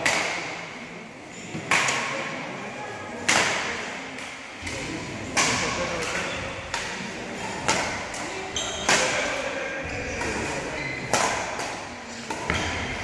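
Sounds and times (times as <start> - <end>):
rackets striking shuttlecock: 3.2 - 13.0.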